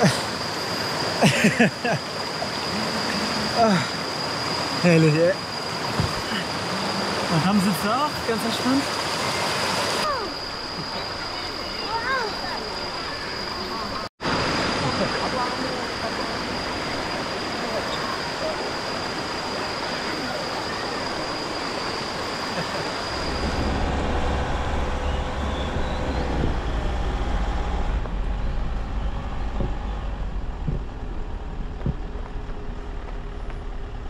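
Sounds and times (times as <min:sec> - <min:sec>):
steady high tone: 0:15.3 - 0:30.4
low rumble: 0:23.0 - 0:34.0.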